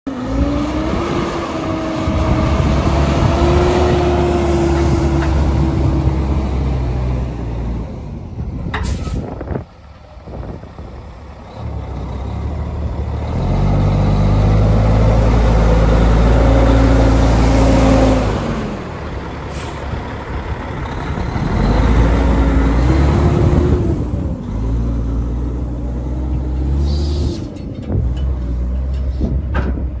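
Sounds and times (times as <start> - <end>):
truck diesel engine driving: 0.1 - 30.0
short sharp air hisses: 8.8 - 9.3.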